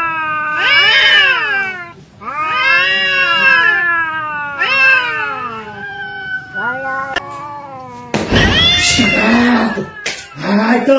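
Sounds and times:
cat-like yowls: 0:00.0 - 0:10.4.

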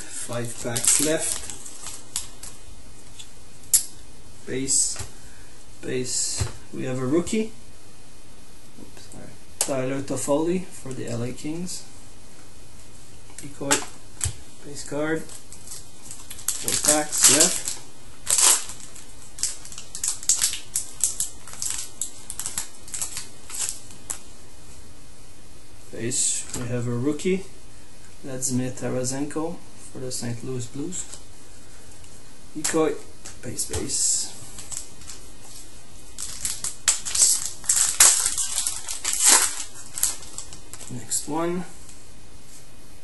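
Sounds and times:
wrapper tearing and crinkling: 0:00.4 - 0:03.9, 0:15.2 - 0:24.2, 0:34.5 - 0:41.0
cards being handled: 0:15.2 - 0:24.2.

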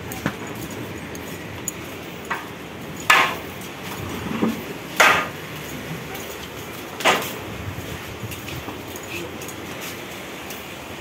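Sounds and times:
steady background noise: 0:00.0 - 0:11.0
sharp knocks: 0:03.1 - 0:03.4, 0:05.0 - 0:05.4.

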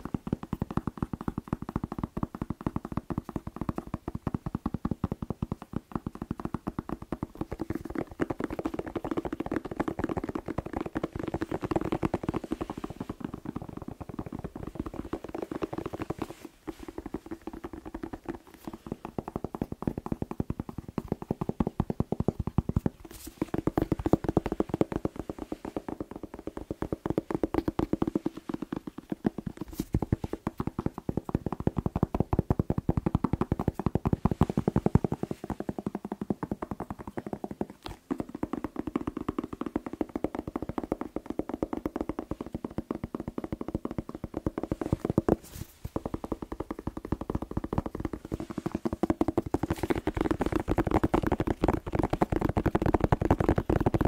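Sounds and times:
fingers tapping on bell pepper: 0:00.0 - 0:54.0.

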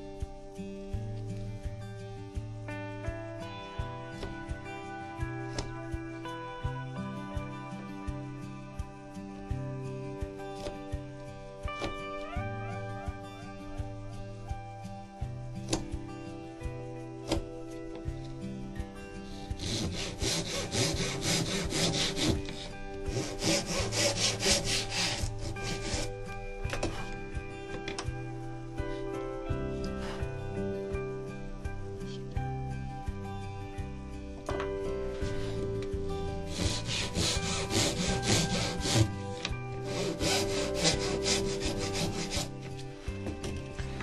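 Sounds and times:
hand saw cutting wood: 0:05.5 - 0:05.7, 0:10.6 - 0:10.8, 0:19.2 - 0:27.2, 0:36.3 - 0:43.5.

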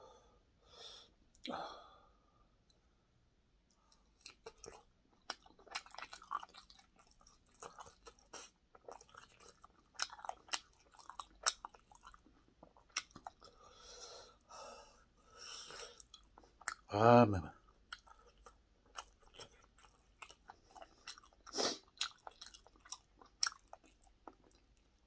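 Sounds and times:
chewing with crunches: 0:03.8 - 0:13.8, 0:15.6 - 0:16.9, 0:17.6 - 0:25.0.

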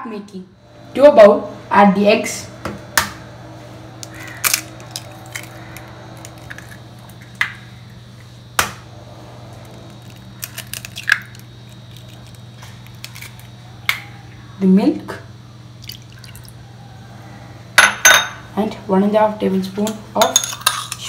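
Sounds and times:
eggshells cracking: 0:04.0 - 0:07.6, 0:09.6 - 0:14.0
shell crackling: 0:04.0 - 0:07.6, 0:09.7 - 0:14.0.

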